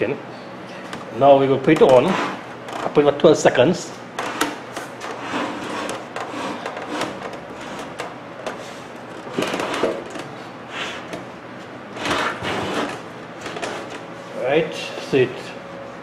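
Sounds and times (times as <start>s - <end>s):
metal cabinet scraping: 1.8s - 2.5s, 4.2s - 8.0s, 8.6s - 11.1s, 11.9s - 14.0s.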